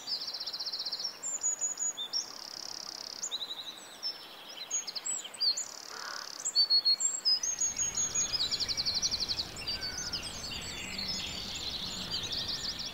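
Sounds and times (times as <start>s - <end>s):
faint low background noise: 0.0s - 12.9s
songbirds singing: 0.0s - 12.9s
rattling bird trill: 7.6s - 12.9s.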